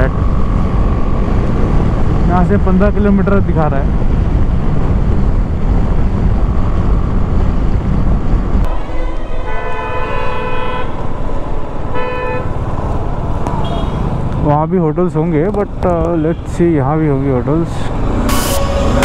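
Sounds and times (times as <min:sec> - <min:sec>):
low vehicle rumble: 0:00.0 - 0:19.0
vehicle horn honking: 0:08.7 - 0:11.0, 0:11.9 - 0:12.5, 0:13.6 - 0:14.1, 0:18.2 - 0:19.0.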